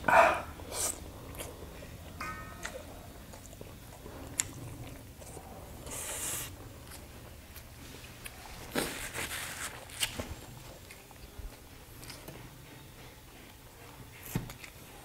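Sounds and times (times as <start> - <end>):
close chewing with mouth smacks: 0.6 - 12.3
paper napkin rustle: 7.9 - 10.4.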